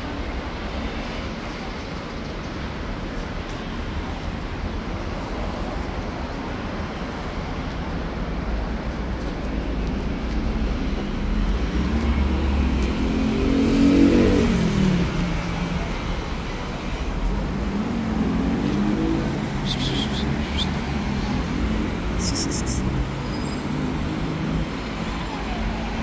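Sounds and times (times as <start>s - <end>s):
city traffic rumble: 0.0s - 26.0s
car engine revving past: 11.9s - 15.3s.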